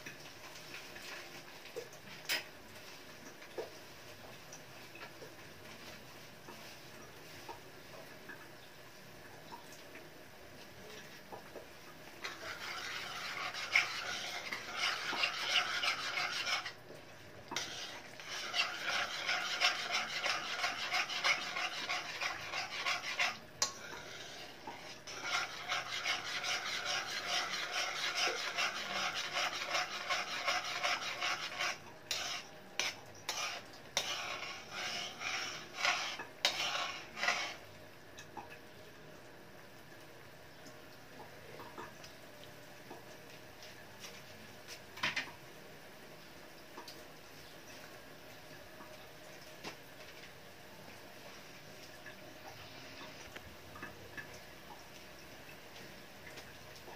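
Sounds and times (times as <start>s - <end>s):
metal spoon scraping a wok: 12.2s - 16.8s, 17.6s - 37.6s.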